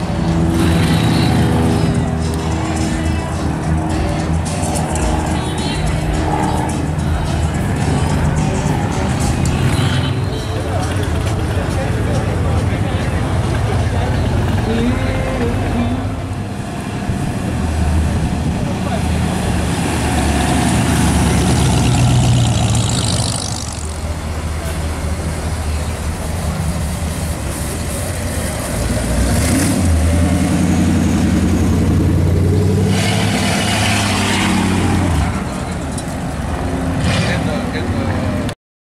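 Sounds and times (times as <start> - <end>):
car engines rumbling past: 0.0 - 38.6.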